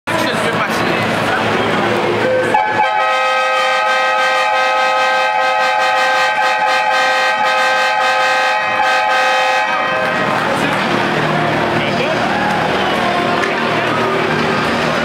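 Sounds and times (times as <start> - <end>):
arena horn blast: 2.2 - 11.6.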